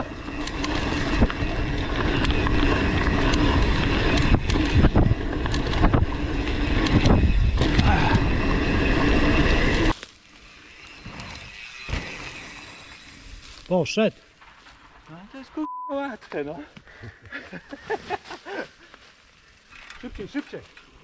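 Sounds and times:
bike rattling and knocking: 0:00.0 - 0:09.9, 0:19.0 - 0:21.0
bike tyres rumbling on dirt: 0:00.0 - 0:15.1, 0:17.5 - 0:21.0.

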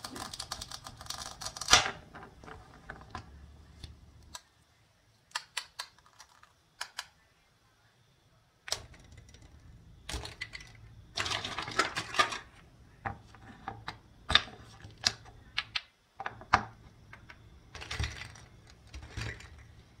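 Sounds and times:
plastic toy pieces clicking: 0:00.0 - 0:01.8.

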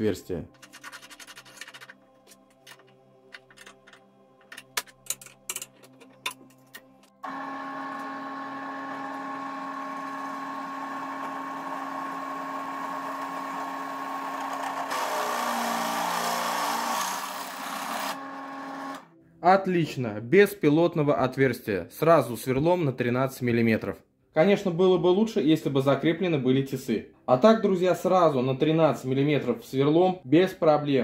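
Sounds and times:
drill bit cutting metal pipe: 0:07.2 - 0:19.0
drill press motor humming: 0:07.2 - 0:19.1.

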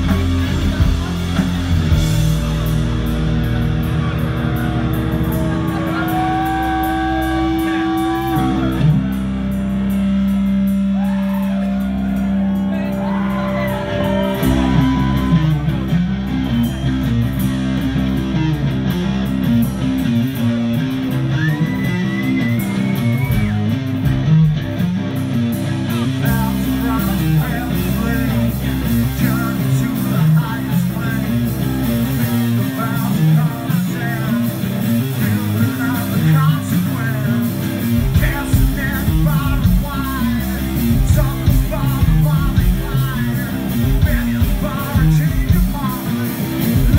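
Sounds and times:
bass guitar: 0:00.0 - 0:46.9
drums: 0:00.0 - 0:46.9
electric guitars: 0:00.0 - 0:46.9
person singing: 0:25.9 - 0:46.9.

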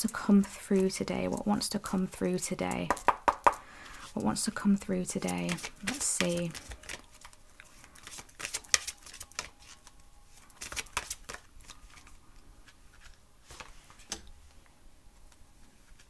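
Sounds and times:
cards being shuffled: 0:05.0 - 0:14.2, 0:15.3 - 0:16.0.

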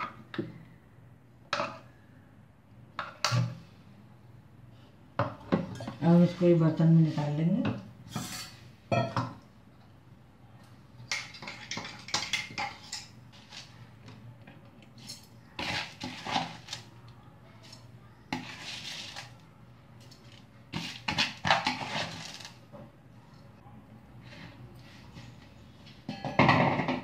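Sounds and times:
steel utensils clattering and scraping: 0:08.1 - 0:08.6, 0:11.1 - 0:13.8.

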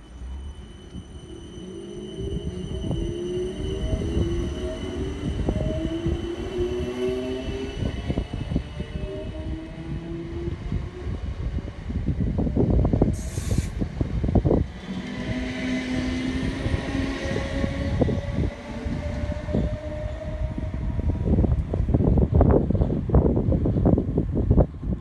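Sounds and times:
brief hiss: 0:13.1 - 0:13.8.

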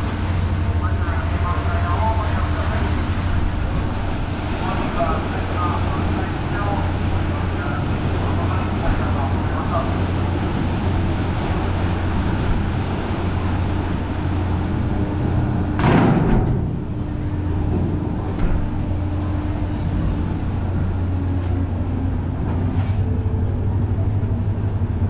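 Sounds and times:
ferry engines humming: 0:00.0 - 0:25.0
ramp thudding onto pier: 0:10.5 - 0:25.0.

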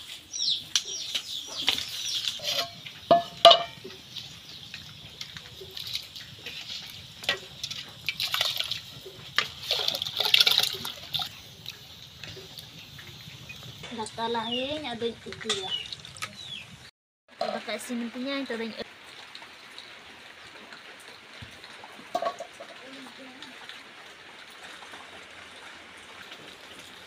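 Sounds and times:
birds chirping: 0:00.0 - 0:06.6, 0:11.3 - 0:16.9
water sloshing in a pot: 0:00.1 - 0:27.0
metal pot clanking: 0:01.6 - 0:04.0, 0:05.2 - 0:11.2, 0:22.1 - 0:22.8.

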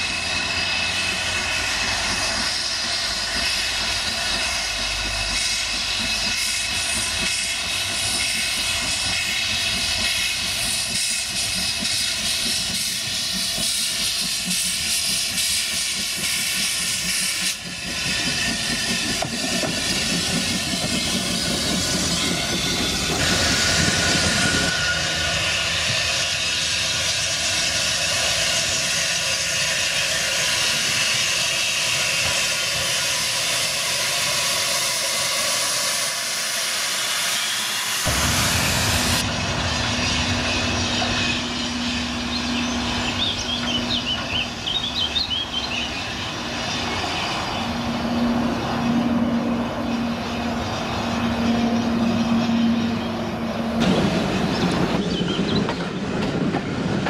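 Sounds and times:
steam locomotive hissing: 0:00.0 - 0:57.0
wheels clacking on rails: 0:00.0 - 0:57.0
birds chirping: 0:39.6 - 0:56.3.

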